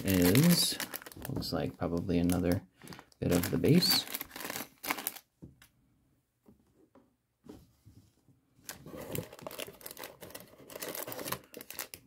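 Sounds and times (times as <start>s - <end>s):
plastic bags crinkling: 0.0s - 5.3s, 8.6s - 12.0s.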